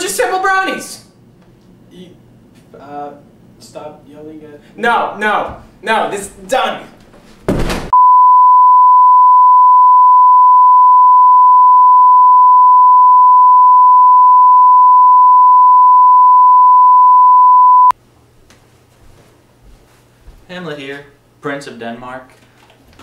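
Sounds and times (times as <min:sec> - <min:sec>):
steady test tone: 0:08.0 - 0:17.9.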